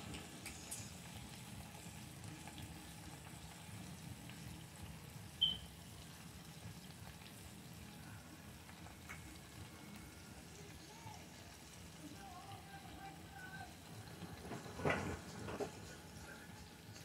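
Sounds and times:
steaks sizzling in a grill pan: 0.0 - 17.0
high-pitched chirp: 5.4 - 5.7.

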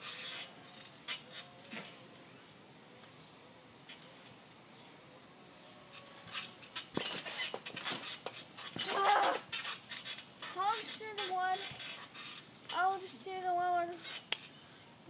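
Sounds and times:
trampoline mat and springs knocking: 6.3 - 11.9.

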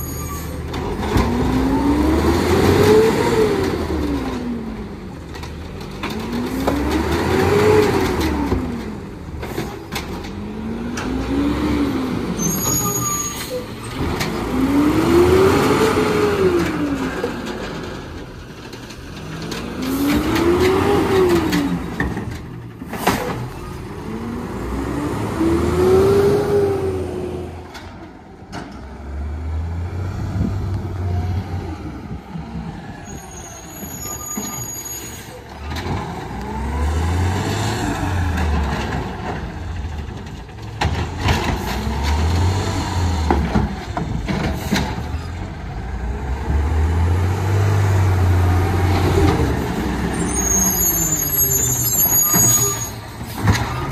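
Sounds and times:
garbage truck engine revving: 0.7 - 4.7, 13.7 - 18.2, 19.0 - 27.8, 35.6 - 53.9.

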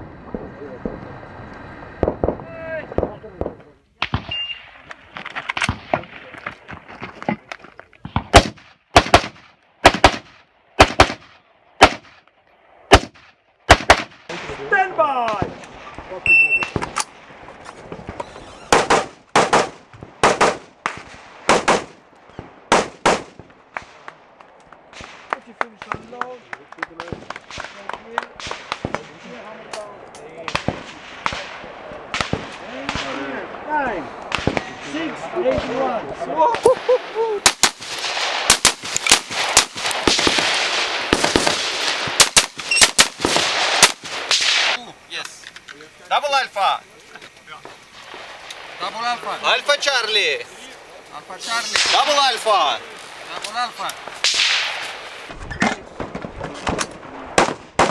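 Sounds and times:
rifle shots with echo: 2.0 - 4.8, 8.1 - 12.3, 12.9 - 14.7, 15.3 - 26.1, 26.9 - 29.7, 30.4 - 36.1, 37.4 - 44.8, 51.6 - 57.9.

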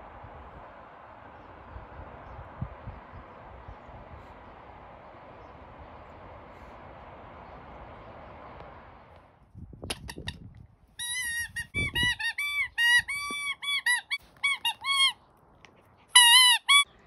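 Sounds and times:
rubber squeaky toy squeaks: 11.0 - 15.2, 16.1 - 16.9.

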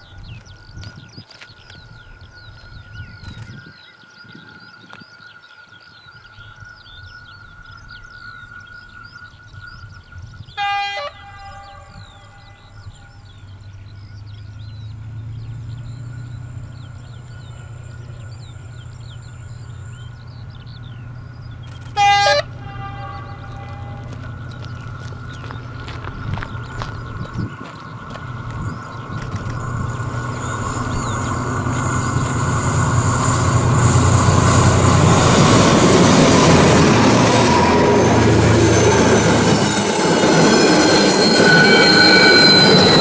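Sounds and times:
locomotive horn blasts: 10.6 - 12.9, 21.9 - 24.6, 36.5 - 43.0
diesel engine rumble: 11.9 - 43.0.

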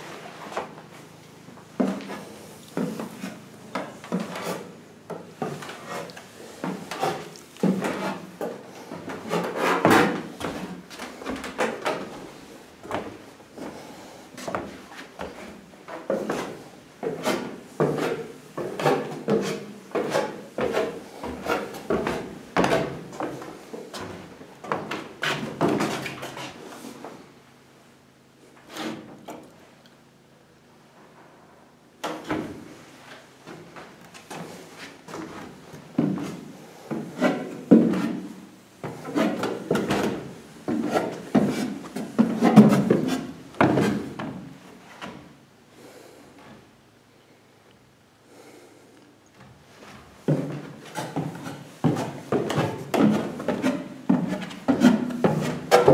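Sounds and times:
footsteps on wooden stairs: 6.6 - 26.5, 49.4 - 55.9.

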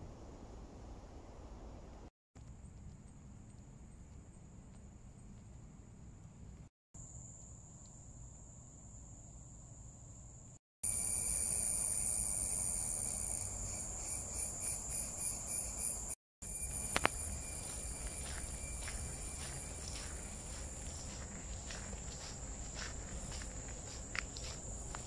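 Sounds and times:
insects droning: 2.6 - 25.0
pulsing insect call: 10.9 - 25.0
footsteps on trail: 16.6 - 25.0.

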